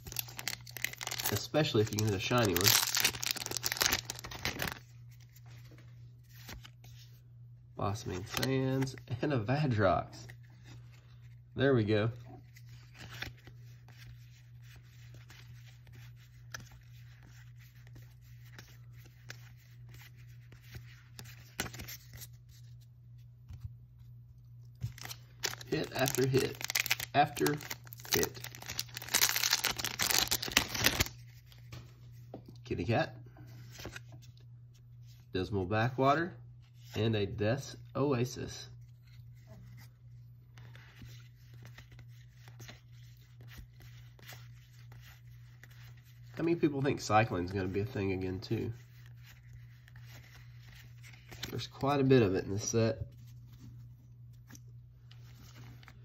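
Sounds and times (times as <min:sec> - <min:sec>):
playing cards rustling and clicking: 0:00.0 - 0:07.2, 0:07.9 - 0:09.1, 0:12.1 - 0:32.6, 0:38.8 - 0:46.4, 0:47.5 - 0:56.0.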